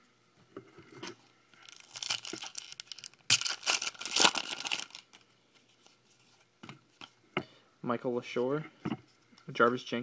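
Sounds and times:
foil wrapper tearing and crinkling: 0:01.6 - 0:05.2.

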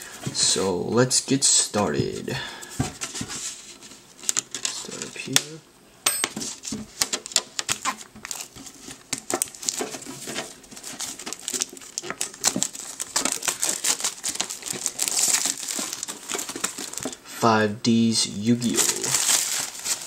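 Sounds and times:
plastic wrap crinkling: 0:02.9 - 0:05.4, 0:06.5 - 0:17.3, 0:18.5 - 0:20.0.

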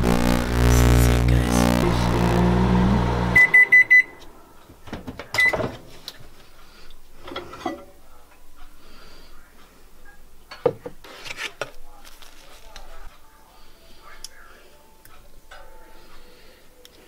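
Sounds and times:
microwave oven humming: 0:00.0 - 0:04.4
high microwave beeps: 0:03.2 - 0:04.2, 0:05.4 - 0:05.6.

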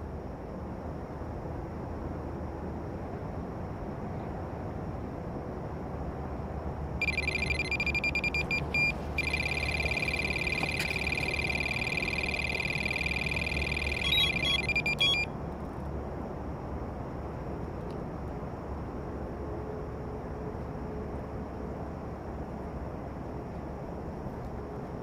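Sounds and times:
electronic bite alarm beeping: 0:07.0 - 0:15.3.

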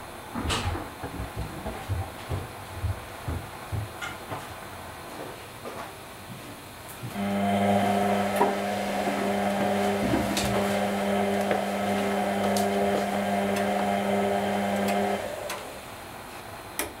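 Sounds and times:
washing machine motor hum: 0:06.8 - 0:17.0.

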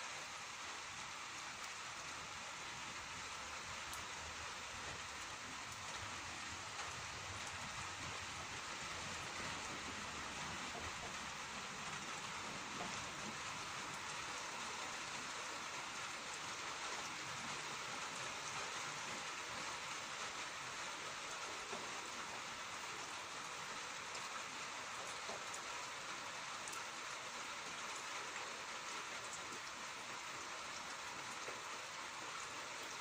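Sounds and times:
rain falling: 0:00.0 - 0:33.0.

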